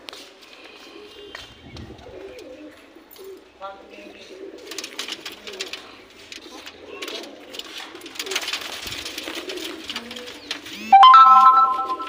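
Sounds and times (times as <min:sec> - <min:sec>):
birds scuffling: 0:00.0 - 0:11.0
pigeons cooing: 0:00.7 - 0:10.9
wings fluttering: 0:04.6 - 0:10.9.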